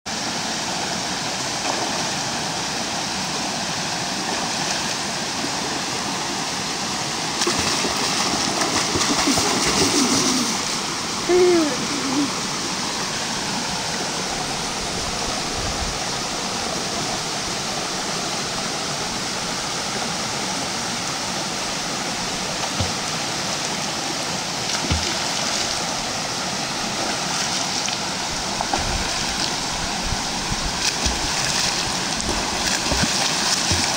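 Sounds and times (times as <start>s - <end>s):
stream rushing over rocks: 0.1s - 33.9s
person shouting: 11.2s - 12.3s.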